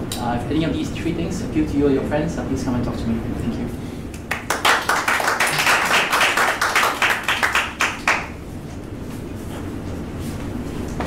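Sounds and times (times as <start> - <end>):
low room hum: 0.0 - 11.0
audience clapping: 4.2 - 8.4.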